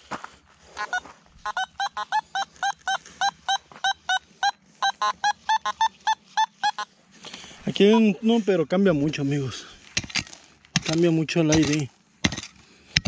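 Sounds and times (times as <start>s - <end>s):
metal detector beeping: 0.8s - 7.0s.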